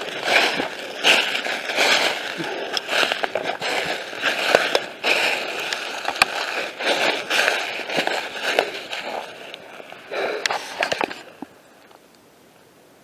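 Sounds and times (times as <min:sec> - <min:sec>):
footsteps crunching through dry leaves: 0:00.0 - 0:11.6
twigs snapping: 0:00.0 - 0:12.0.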